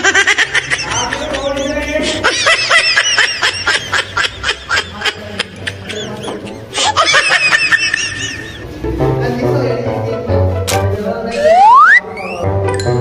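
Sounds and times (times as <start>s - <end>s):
background music: 0.0s - 13.0s
sped-up laughing squeals: 11.4s - 12.4s.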